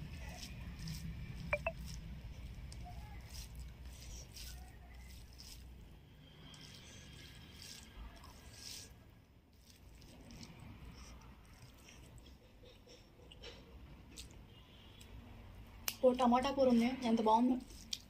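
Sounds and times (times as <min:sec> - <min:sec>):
fingers squishing rice: 0:00.0 - 0:13.4, 0:17.5 - 0:18.0.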